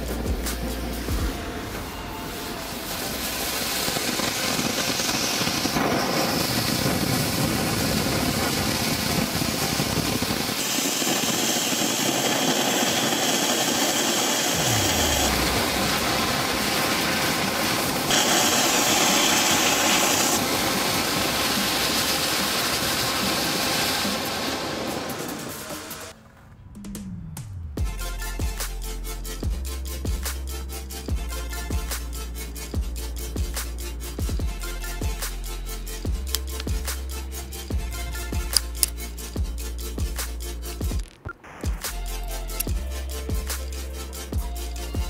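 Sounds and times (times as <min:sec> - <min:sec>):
fireworks hissing sparks: 0:00.0 - 0:26.2, 0:28.6 - 0:45.0
harsher higher hiss: 0:08.4 - 0:26.1.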